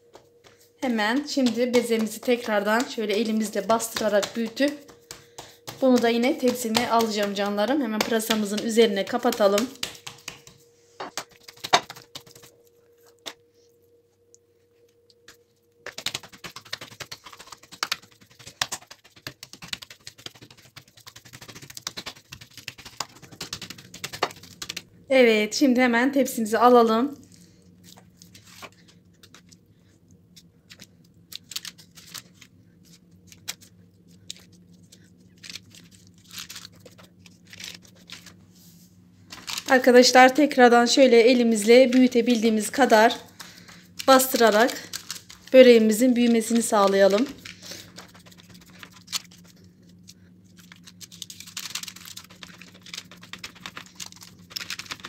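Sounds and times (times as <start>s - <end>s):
low steady hum: 0.0s - 55.0s
hand patting dough: 0.1s - 12.6s, 15.2s - 24.9s
baking paper crackling: 0.4s - 12.6s, 15.3s - 24.9s, 30.4s - 55.0s.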